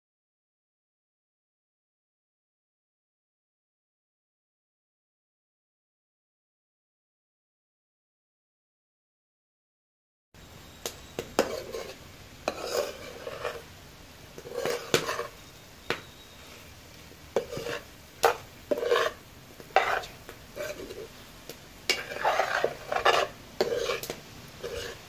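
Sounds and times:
spatula scraping pan: 10.8s - 25.0s.

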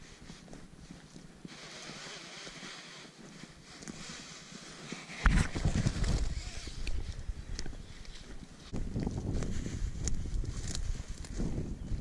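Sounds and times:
footsteps through dry undergrowth: 0.0s - 12.0s
wind rumble on microphone: 4.0s - 12.0s
twig clicks: 5.2s - 9.2s, 10.0s - 11.4s.

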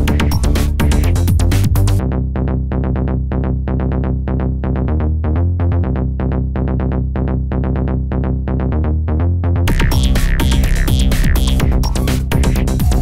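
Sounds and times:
electronic music: 0.0s - 2.3s, 9.7s - 13.0s.

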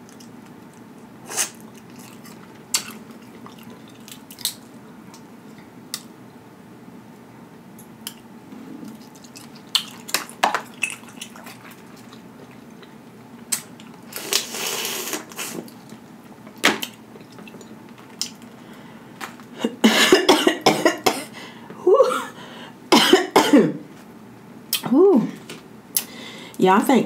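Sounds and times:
slurping suck: 14.1s - 15.7s.

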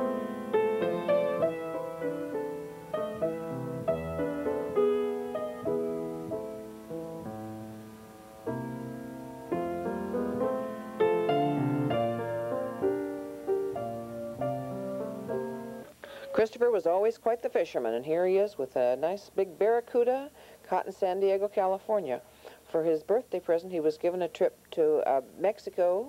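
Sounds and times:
slow piano melody: 0.0s - 15.9s.

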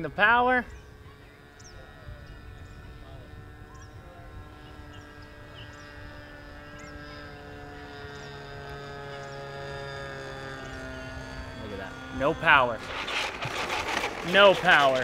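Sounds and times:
electric ducted fan whine: 0.0s - 15.0s
bird chirping: 0.6s - 3.0s, 6.7s - 7.1s.

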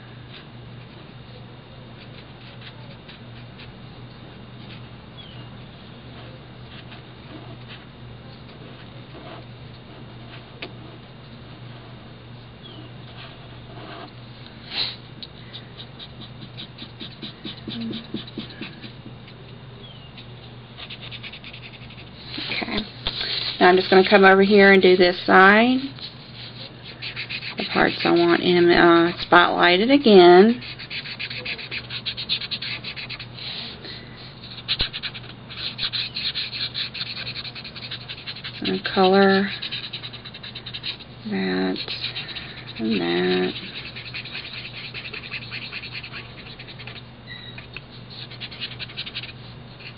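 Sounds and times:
marker scratching on card: 15.5s - 19.4s, 20.2s - 25.0s, 25.8s - 29.4s, 30.0s - 49.9s.

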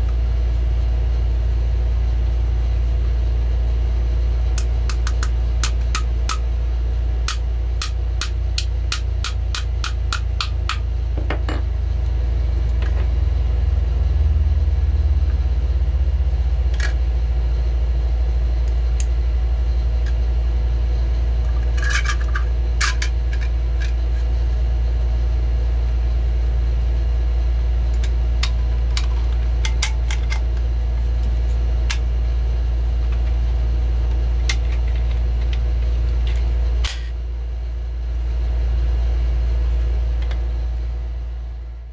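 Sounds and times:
low electrical hum: 0.0s - 41.9s
magazine parts clicking and scraping: 21.7s - 24.0s.

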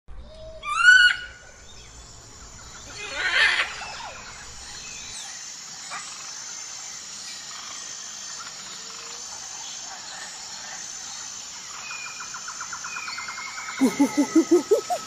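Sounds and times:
insects chirring: 0.6s - 15.0s
monkey screech: 2.9s - 4.0s, 13.8s - 15.0s
monkey calls: 13.7s - 15.0s.

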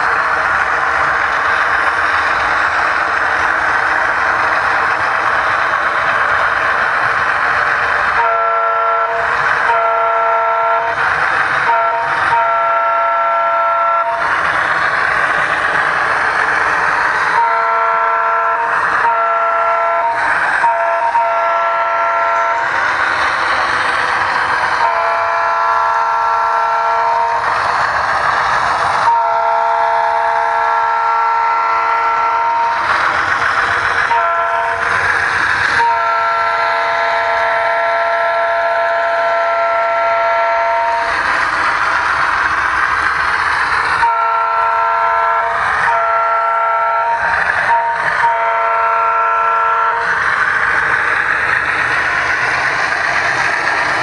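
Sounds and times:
locomotive running rush: 0.0s - 54.0s
locomotive air horn blasts: 8.1s - 11.0s, 11.6s - 14.2s, 17.3s - 22.7s, 24.8s - 27.5s, 29.0s - 33.0s, 34.0s - 35.0s, 35.7s - 41.1s, 44.0s - 50.2s.

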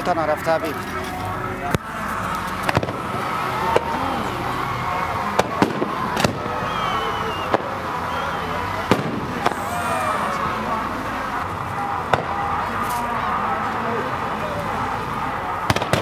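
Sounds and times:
fireworks bangs: 2.5s - 4.0s, 5.2s - 6.7s, 7.3s - 8.1s, 8.8s - 9.9s, 11.8s - 13.0s, 15.6s - 16.0s.

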